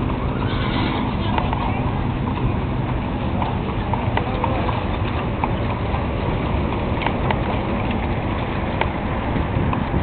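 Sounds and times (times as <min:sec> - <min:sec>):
hooves clip-clopping on pavement: 0:00.0 - 0:10.0
steady low rumble: 0:00.0 - 0:10.0.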